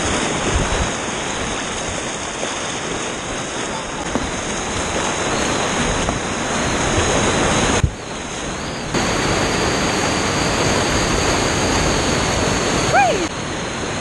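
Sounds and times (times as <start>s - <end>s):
whitewater rushing: 0.0s - 14.0s.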